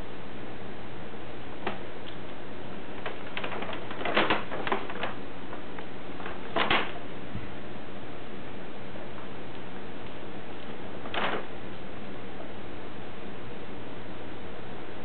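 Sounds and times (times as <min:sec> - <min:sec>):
cat scrabbling in paper bag: 0:03.0 - 0:07.0, 0:11.0 - 0:11.5.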